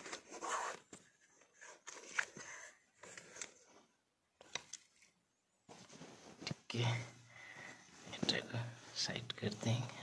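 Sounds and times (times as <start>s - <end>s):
cloth rustling: 4.8s - 9.0s.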